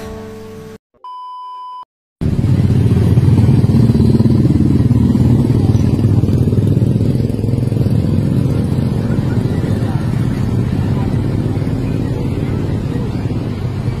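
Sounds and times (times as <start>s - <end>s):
short electronic beep: 1.0s - 1.9s
engine rumbling: 2.2s - 14.0s.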